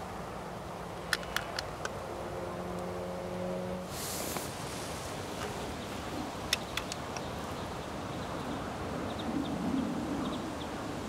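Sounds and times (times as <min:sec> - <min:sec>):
faint steady hum: 0:00.0 - 0:11.0
sharp clicks: 0:01.1 - 0:02.0, 0:06.5 - 0:07.3
short hiss: 0:03.9 - 0:05.5
wind buffeting microphone: 0:03.9 - 0:11.0.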